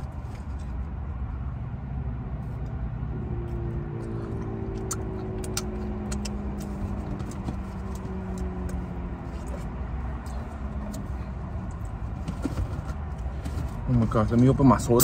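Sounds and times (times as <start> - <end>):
wet mouth clicks: 4.3 - 6.7.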